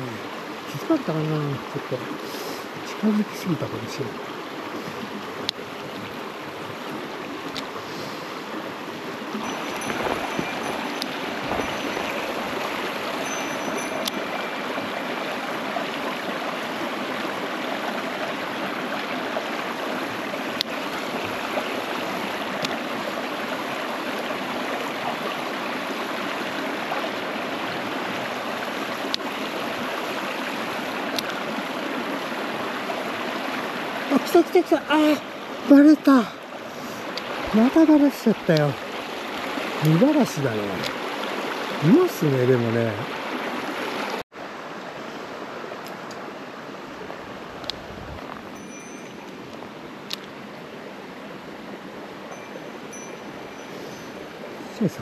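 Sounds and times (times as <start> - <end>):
stream running over rocks: 0.0 - 55.0.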